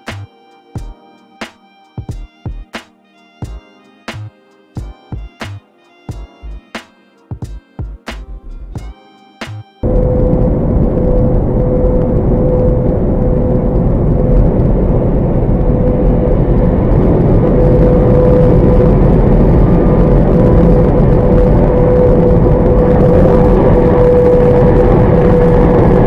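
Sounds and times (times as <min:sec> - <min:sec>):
brief music: 0:00.0 - 0:12.7
constant hum: 0:09.8 - 0:26.0.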